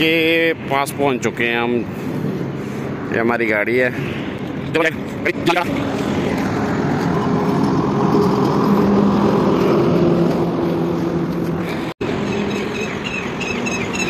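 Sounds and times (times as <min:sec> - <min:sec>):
steady engine hum: 0:00.0 - 0:14.0
heavy truck passing: 0:03.9 - 0:12.9.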